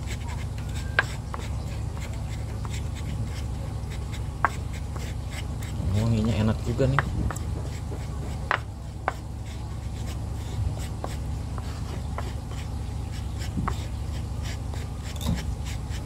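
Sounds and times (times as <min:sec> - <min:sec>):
pestle grinding in mortar: 0:00.0 - 0:16.0
pestle knocking rim: 0:06.8 - 0:09.2.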